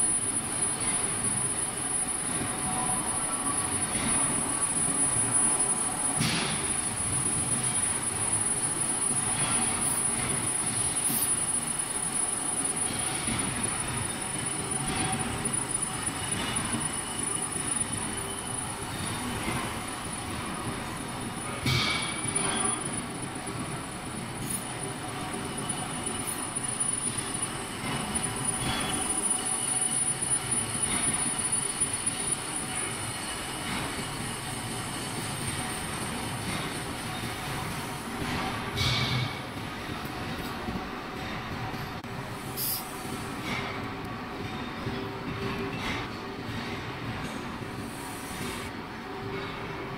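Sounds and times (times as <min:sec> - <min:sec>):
thin high whine: 0:00.0 - 0:39.3.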